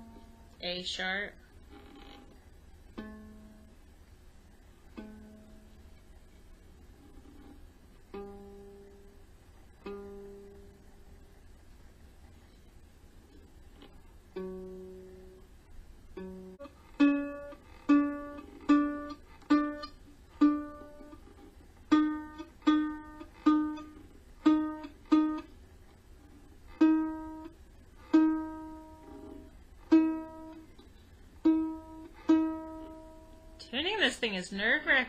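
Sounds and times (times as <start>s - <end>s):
ukulele string plucked: 2.9s - 3.7s, 4.9s - 5.8s, 7.0s - 9.2s, 9.8s - 10.8s, 13.8s - 15.4s, 16.2s - 25.5s, 26.7s - 33.6s.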